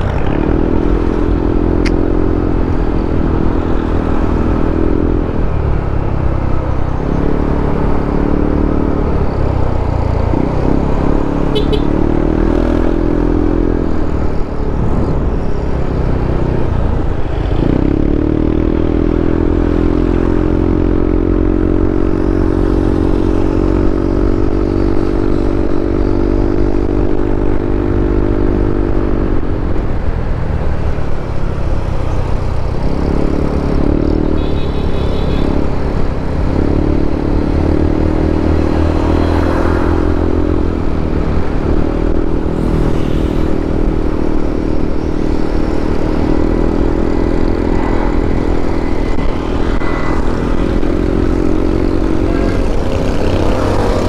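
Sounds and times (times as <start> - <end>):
motorcycle engine running: 32.0 - 54.0.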